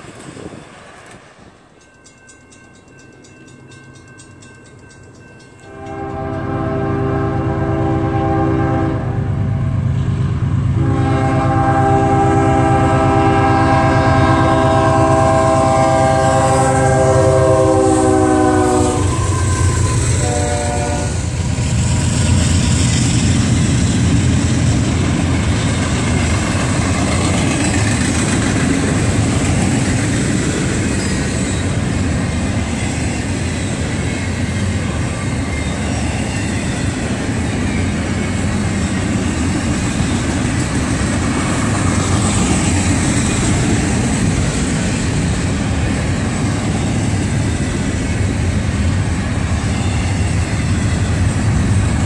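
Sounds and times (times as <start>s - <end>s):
locomotive air horn blasts: 5.7s - 9.7s, 10.8s - 21.4s
train cars clattering: 16.9s - 52.0s.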